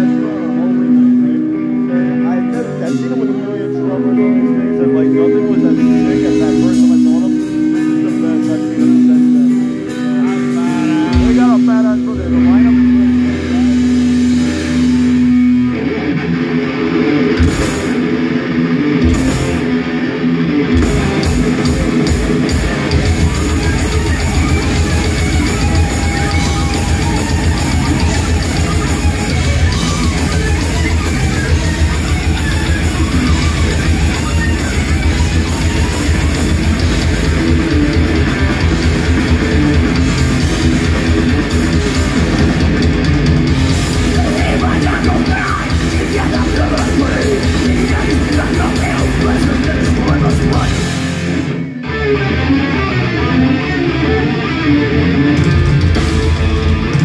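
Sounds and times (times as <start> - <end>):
bass guitar: 0.0 - 57.0
distorted electric guitars: 0.0 - 57.0
fast drumming: 10.4 - 15.3, 17.4 - 18.2, 20.8 - 51.2.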